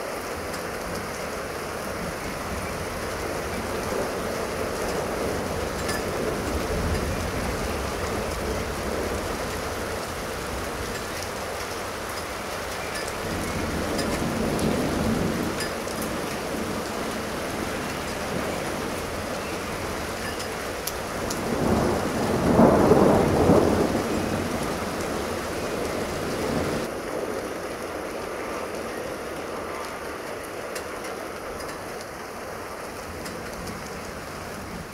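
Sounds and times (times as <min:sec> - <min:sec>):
steady rain hiss: 0:00.0 - 0:34.9
rolling thunder: 0:13.0 - 0:30.0.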